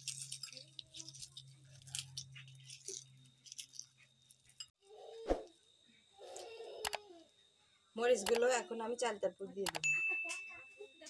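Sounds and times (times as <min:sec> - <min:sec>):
dried chillies crackling: 0:00.0 - 0:04.7.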